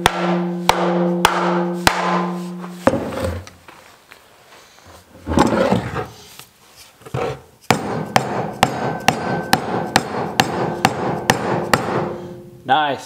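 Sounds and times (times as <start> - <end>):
mallet striking pipe fittings: 0.0 - 3.5, 7.6 - 12.6.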